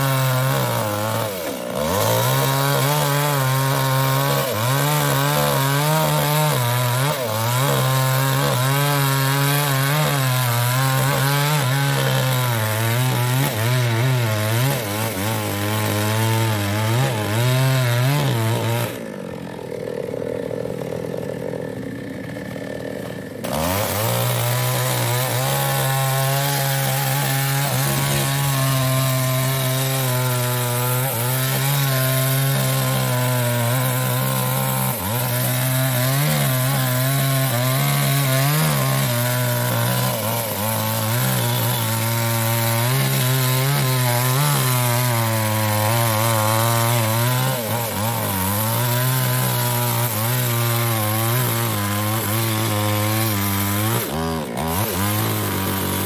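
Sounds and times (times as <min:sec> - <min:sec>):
chainsaw cutting through log: 0:00.0 - 0:56.0.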